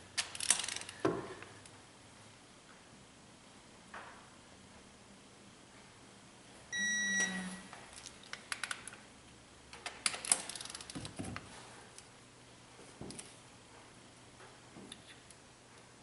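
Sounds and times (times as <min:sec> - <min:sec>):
electronic beep: 0:06.8 - 0:07.7.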